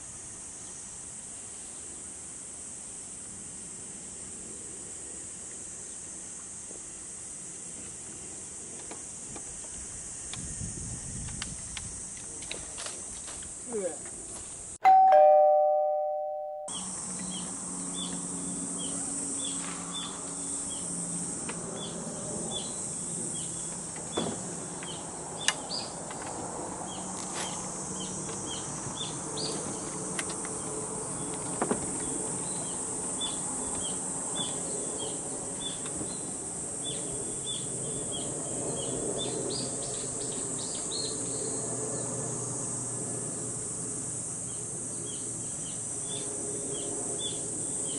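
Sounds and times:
insects droning: 0:00.0 - 0:14.8, 0:16.7 - 0:47.9
two-tone chime: 0:14.8 - 0:16.8.

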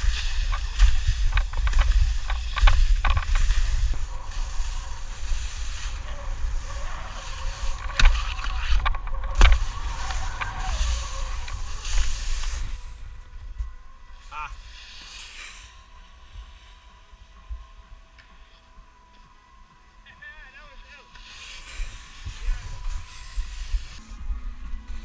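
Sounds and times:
wind buffeting microphone: 0:00.0 - 0:14.2, 0:22.0 - 0:25.0
skis scraping over snow: 0:00.0 - 0:17.0, 0:20.3 - 0:24.2.

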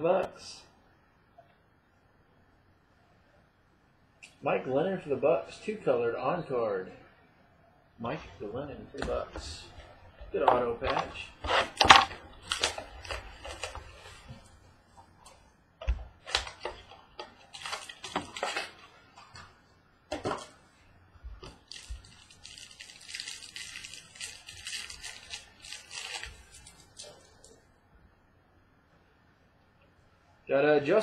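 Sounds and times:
wrapper crinkling: 0:10.8 - 0:14.5, 0:16.2 - 0:19.5, 0:21.4 - 0:27.6.

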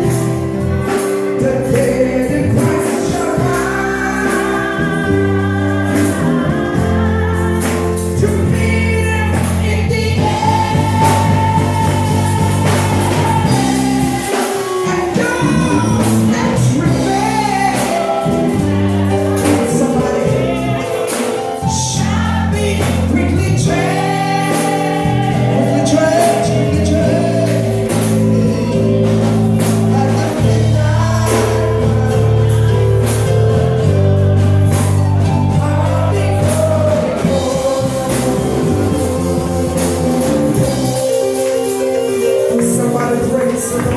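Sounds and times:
congregation singing gospel song: 0:00.0 - 0:43.9
people clapping along: 0:17.5 - 0:23.1, 0:38.9 - 0:43.9.

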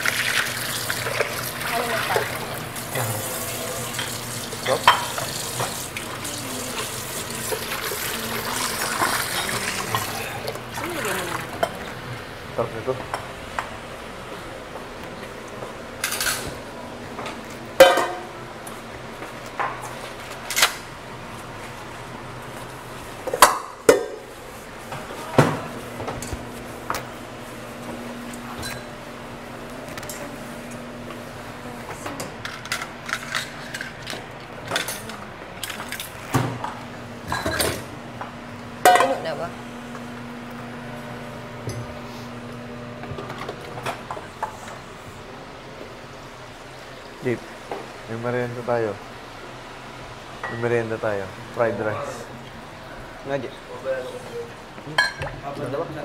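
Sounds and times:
dishes clanking in a sink: 0:02.0 - 0:12.0, 0:17.8 - 0:18.4, 0:32.2 - 0:37.9, 0:38.8 - 0:39.2, 0:55.0 - 0:55.4
dishes and cutlery clinking: 0:04.0 - 0:05.7, 0:17.8 - 0:18.3, 0:55.0 - 0:55.3.

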